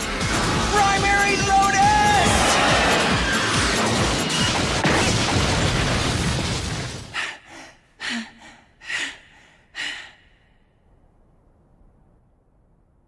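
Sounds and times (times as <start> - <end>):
music: 0.0 - 5.4
hard panting breaths: 7.2 - 10.6.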